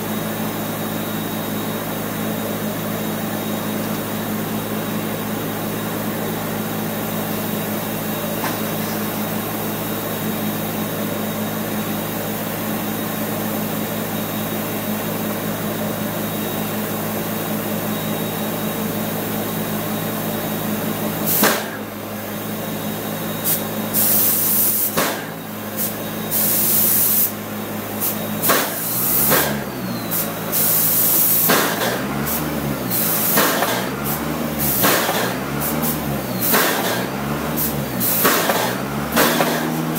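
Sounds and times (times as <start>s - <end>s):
steady machine drone: 0.0s - 39.9s
paint spray gun hissing bursts: 23.4s - 27.4s, 28.0s - 39.8s.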